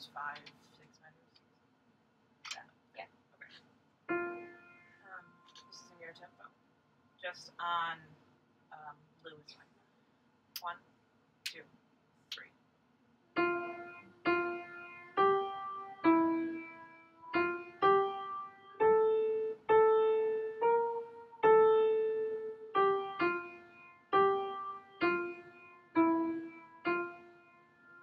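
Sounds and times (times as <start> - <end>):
upright piano single notes: 4.1 - 5.8, 13.4 - 28.0.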